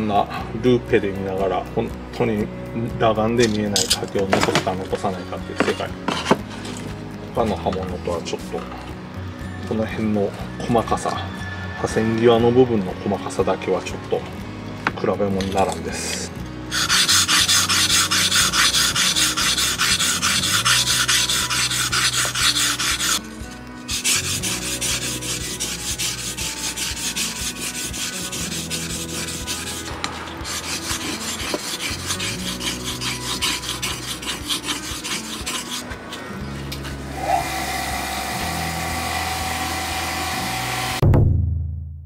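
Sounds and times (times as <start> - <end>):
blade scraping on wet whetstone: 3.4 - 7.9, 16.7 - 37.6.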